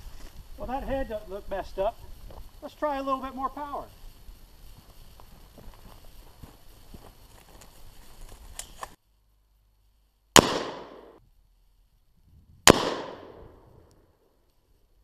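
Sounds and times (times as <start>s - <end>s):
gunshots: 10.4s - 11.2s, 12.7s - 13.5s.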